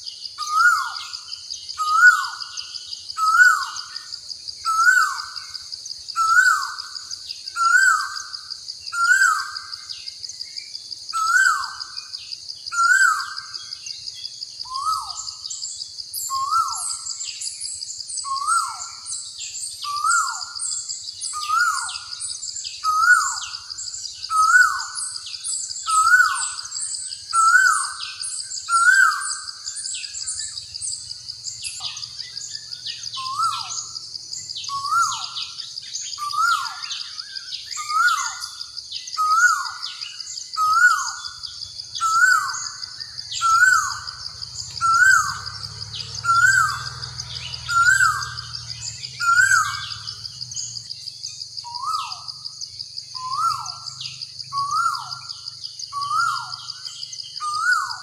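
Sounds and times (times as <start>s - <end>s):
birds chirping: 0.0s - 58.0s
high insect buzz: 40.6s - 55.5s.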